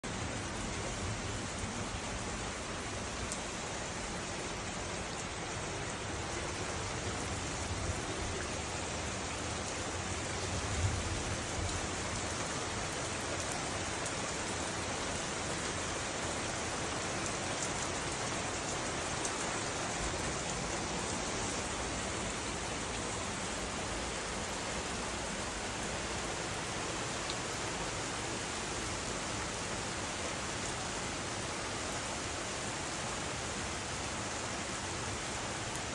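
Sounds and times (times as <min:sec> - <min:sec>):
rain on foliage and pavement: 0:00.0 - 0:35.9.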